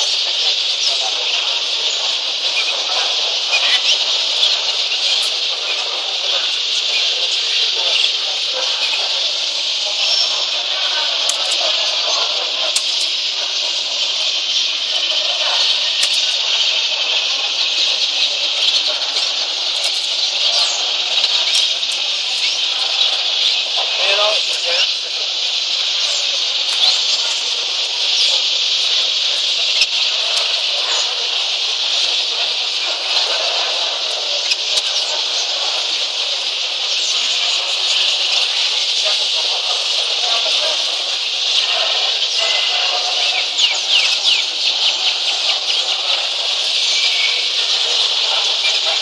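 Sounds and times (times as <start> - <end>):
canaries chirping and singing: 1.8 - 49.0.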